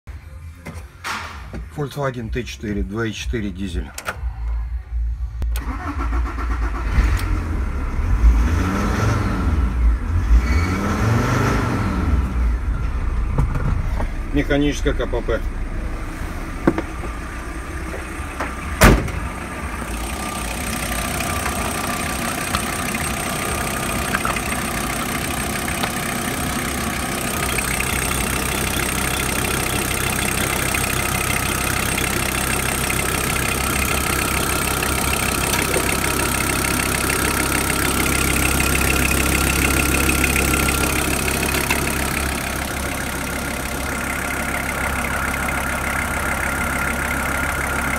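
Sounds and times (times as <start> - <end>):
diesel engine idling: 12.0 - 47.9
loud bang: 18.7 - 19.4.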